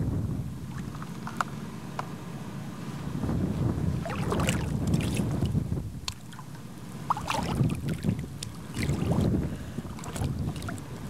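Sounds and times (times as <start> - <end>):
water sloshing and splashing: 0.7 - 1.4, 3.9 - 11.0
small clicks and knocks: 0.9 - 2.1.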